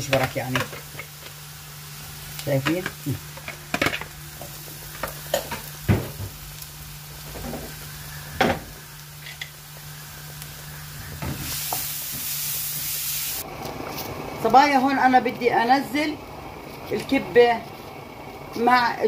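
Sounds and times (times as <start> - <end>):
garlic sizzling in oil: 0.0 - 19.0.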